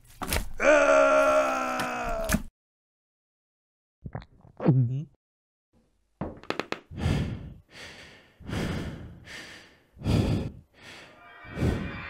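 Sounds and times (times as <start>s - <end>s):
person breathing heavily: 6.9s - 11.9s.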